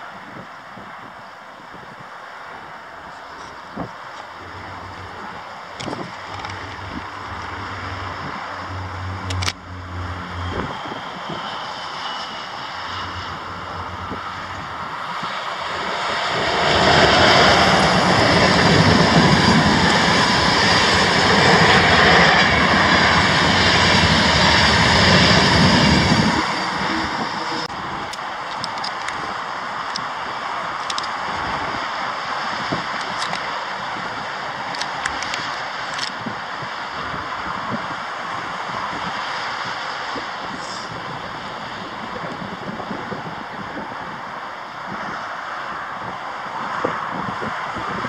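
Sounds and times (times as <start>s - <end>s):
wind buffeting microphone: 0.0s - 48.0s
train coaches rolling past: 4.3s - 37.5s
low rumble: 4.4s - 11.6s, 12.6s - 28.0s.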